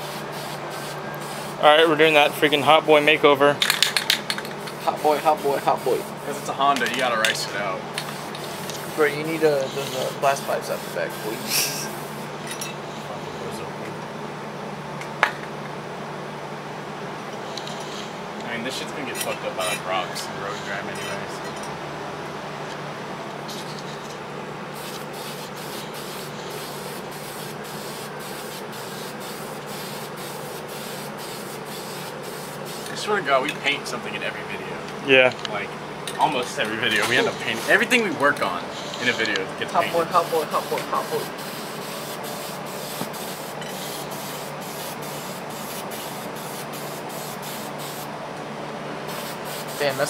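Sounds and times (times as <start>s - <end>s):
spray can hissing in bursts: 0.0s - 1.6s, 4.6s - 6.5s, 7.9s - 12.4s, 24.8s - 32.9s, 39.8s - 48.1s, 49.1s - 50.0s.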